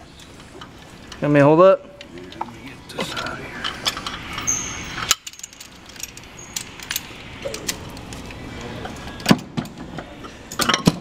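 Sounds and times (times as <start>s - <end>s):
metal clinks and knocks: 3.6s - 7.9s.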